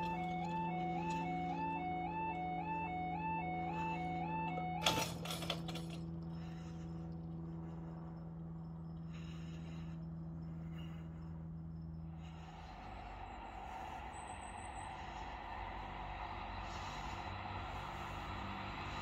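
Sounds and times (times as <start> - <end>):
level crossing two-tone alarm: 0.0 - 6.2
low steady hum: 0.0 - 19.0
low rushing noise: 12.1 - 19.0.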